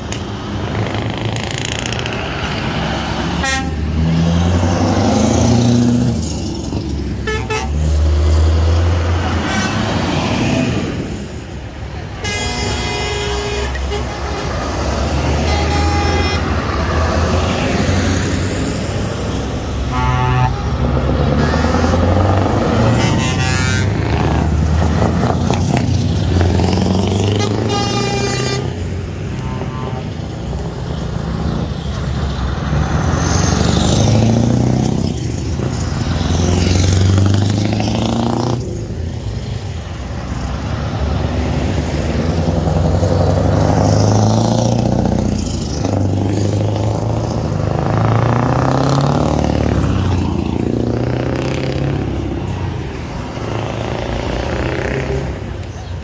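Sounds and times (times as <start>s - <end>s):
heavy trucks driving past: 0.0s - 56.0s
air horn blasts: 3.4s - 3.9s, 7.2s - 7.8s, 12.2s - 14.5s, 15.4s - 16.6s, 19.8s - 22.1s, 22.9s - 24.1s, 27.3s - 28.8s, 29.4s - 30.1s.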